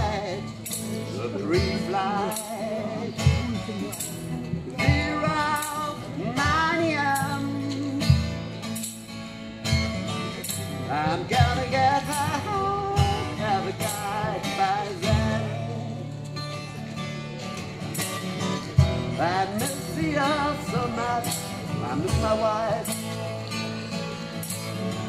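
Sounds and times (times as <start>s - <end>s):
man singing: 0.0s - 8.6s, 10.1s - 16.4s, 18.7s - 23.6s
cajon thumping a low beat: 0.0s - 25.0s
strummed acoustic guitar: 0.0s - 25.0s.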